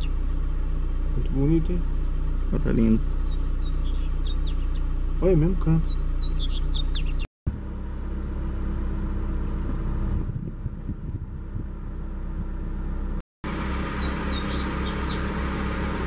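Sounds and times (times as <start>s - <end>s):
low rumble: 0.0s - 16.0s
bird singing high whistles: 3.2s - 4.9s, 5.8s - 7.3s, 13.8s - 15.2s.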